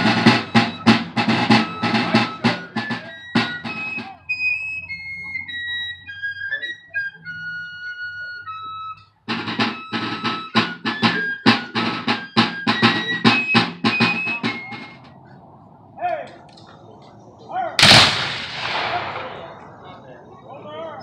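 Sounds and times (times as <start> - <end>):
drums beating: 0.0 - 4.3, 9.3 - 15.4, 17.8 - 19.9
fife playing march tune: 0.0 - 15.4, 17.8 - 20.0.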